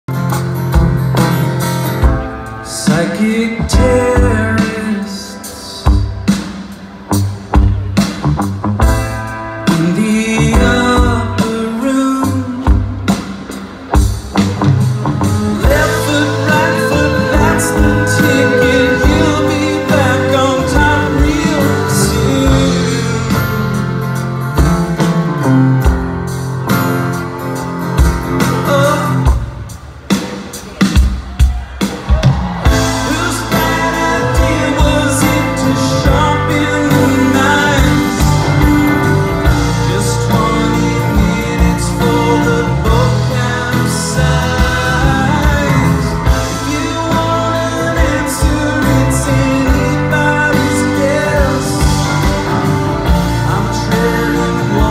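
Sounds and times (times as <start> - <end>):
electric guitar: 0.1 - 29.7, 32.2 - 54.9
acoustic guitar: 0.1 - 29.9, 32.4 - 54.9
keyboard: 0.1 - 54.9
live band with strings: 0.1 - 54.9
man singing into microphone: 2.6 - 6.0, 9.6 - 13.1, 15.4 - 24.0, 28.4 - 29.5, 33.0 - 54.9.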